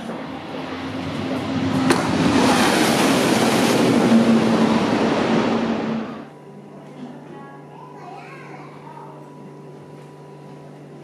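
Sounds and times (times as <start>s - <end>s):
train rushing roar: 0.0s - 6.3s.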